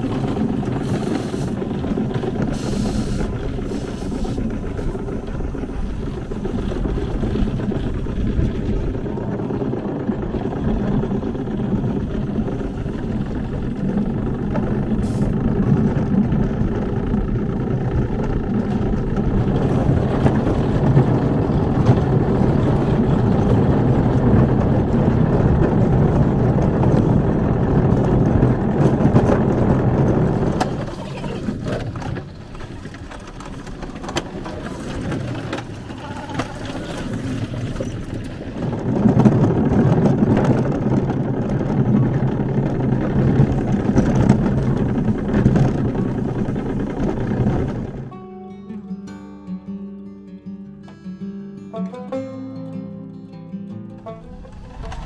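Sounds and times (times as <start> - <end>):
kart engine rumble: 0.0 - 48.2, 54.0 - 55.0.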